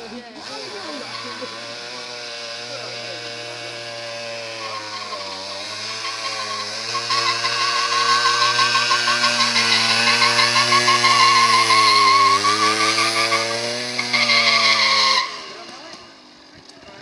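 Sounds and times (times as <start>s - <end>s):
dirt bike engine revving: 0.0s - 16.6s.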